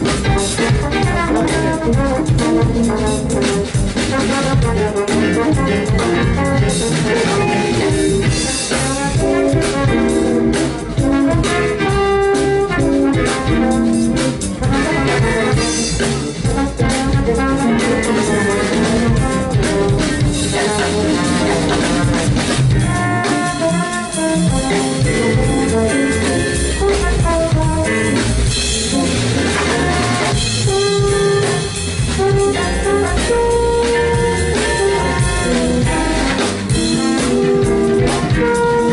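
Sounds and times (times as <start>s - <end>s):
drum kit: 0.0s - 38.9s
electric bass: 0.0s - 38.9s
electric guitar: 0.0s - 38.9s
keyboard: 0.0s - 38.9s
trombone: 0.0s - 38.9s.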